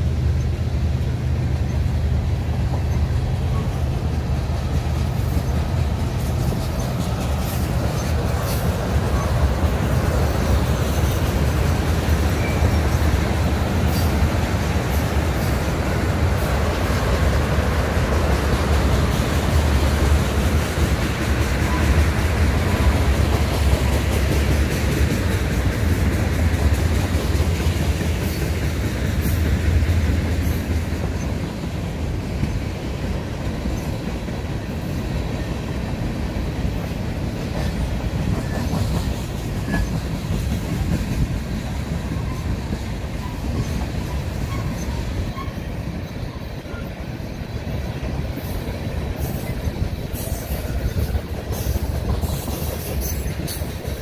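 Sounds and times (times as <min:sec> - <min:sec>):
train wheels rumbling on rails: 0:00.0 - 0:54.0
faint wheel squeals: 0:43.1 - 0:47.0.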